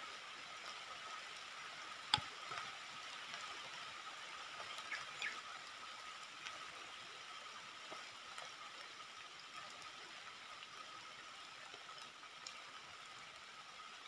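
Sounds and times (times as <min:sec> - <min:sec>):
faint ticks: 0:01.8 - 0:03.9, 0:04.6 - 0:13.6.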